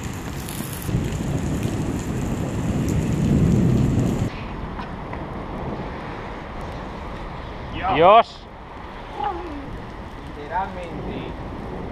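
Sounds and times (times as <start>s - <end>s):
thunder rumbling: 0.0s - 6.4s, 9.6s - 11.9s
steady rain: 0.0s - 11.9s.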